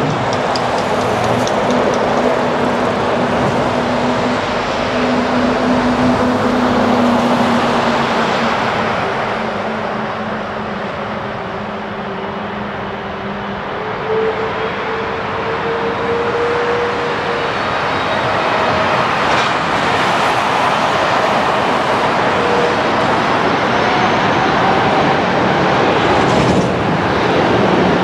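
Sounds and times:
high engine whine: 0.0s - 28.0s
jet engines taxiing: 0.0s - 28.0s.

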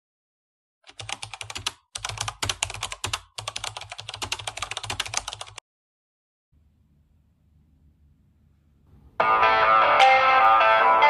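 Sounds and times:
computer keyboard typing: 0.9s - 5.6s
faint low hum: 6.6s - 9.2s.

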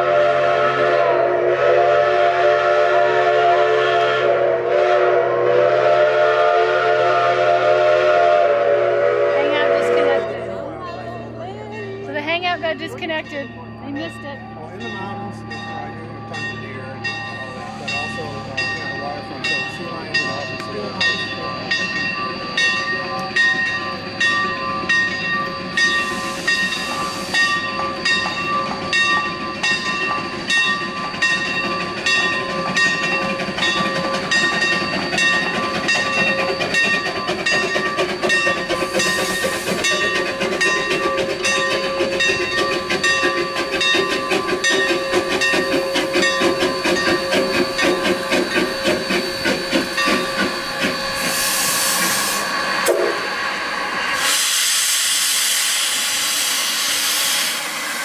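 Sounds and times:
steam exhaust chuffs: 0.0s - 10.4s, 12.5s - 58.0s
locomotive bell ringing: 9.5s - 53.7s
steam hiss bursts: 25.6s - 30.3s, 33.0s - 58.0s.

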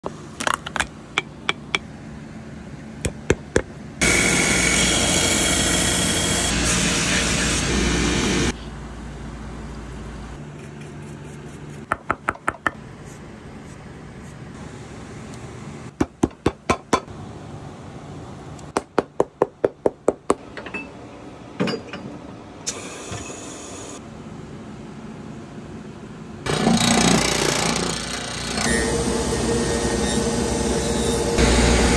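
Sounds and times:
hammer tapping on boot sole: 3.0s - 3.7s.

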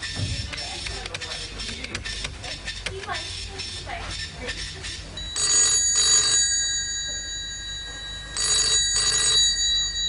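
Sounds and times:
desk telephone ringing: 5.2s - 10.0s.

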